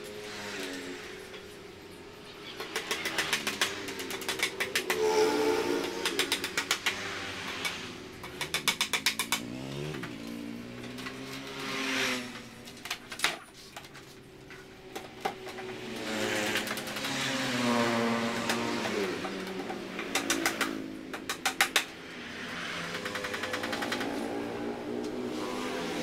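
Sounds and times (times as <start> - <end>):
vehicle engine revving: 15.9 - 19.5, 22.2 - 26.0
rapid even clicking: 22.8 - 24.2.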